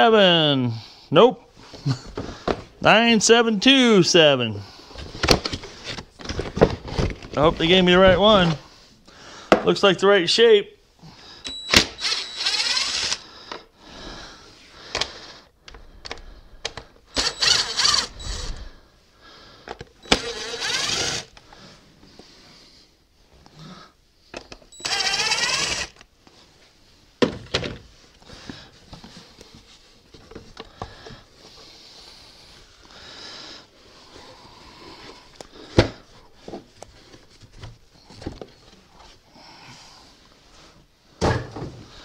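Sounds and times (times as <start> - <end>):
cordless drill motor spinning: 11.5 - 13.2, 17.1 - 18.7, 20.0 - 21.4, 24.7 - 26.1.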